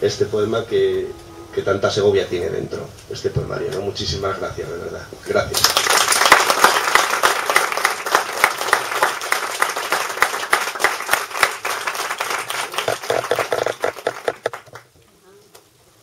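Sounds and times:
audience applauding: 5.5 - 14.9.

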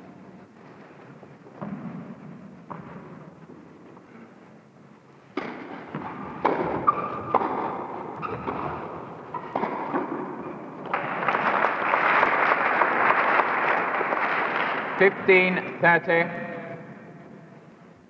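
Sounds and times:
racket striking tennis ball: 5.3 - 11.0
crowd applause: 10.8 - 15.5.

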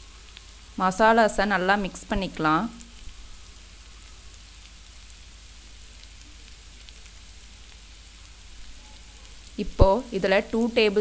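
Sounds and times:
masala sizzling in oil: 0.0 - 11.0
faint ticks: 0.3 - 0.5.

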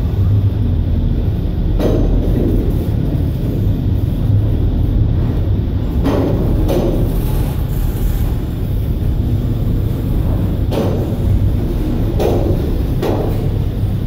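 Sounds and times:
train wheels rumbling on rail: 0.0 - 14.0.

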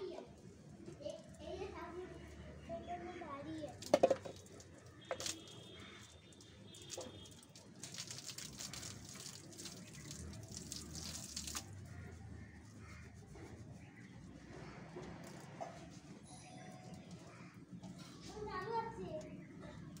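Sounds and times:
water dripping from wrung hair: 3.6 - 12.6.

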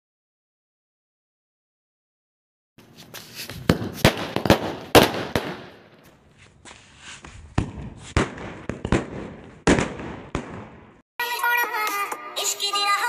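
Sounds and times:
firecracker bangs: 3.6 - 5.9, 7.6 - 11.0
firecrackers crackling: 3.6 - 6.0, 7.6 - 11.0.

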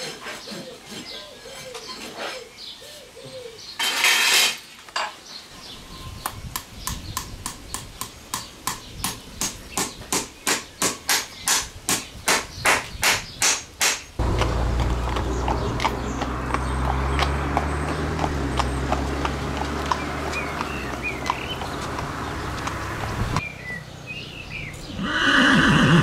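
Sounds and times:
steady low rumble: 14.2 - 19.0.

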